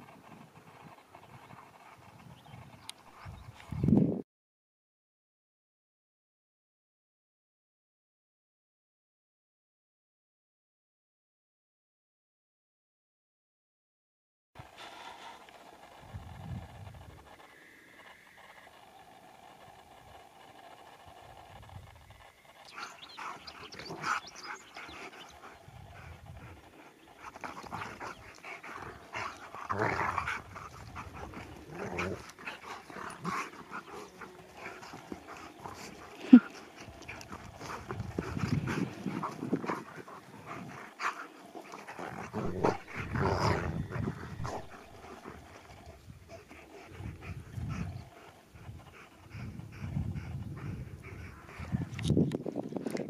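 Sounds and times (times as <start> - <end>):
dogs growling and grunting: 14.6 - 52.0.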